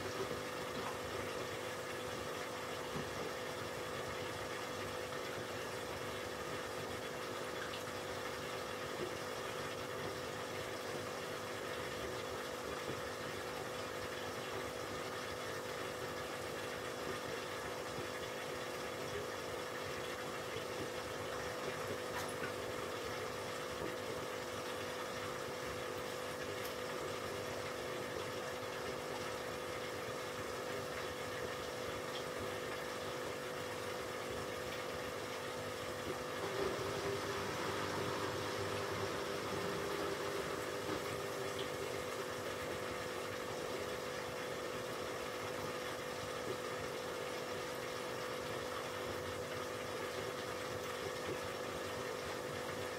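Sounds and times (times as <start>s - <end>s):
aquarium pump humming: 0.0s - 52.9s.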